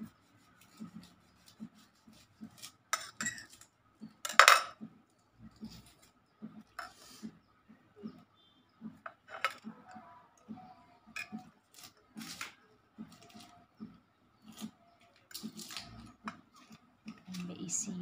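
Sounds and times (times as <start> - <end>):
knife and fingers on ceramic plate: 0.6 - 3.7.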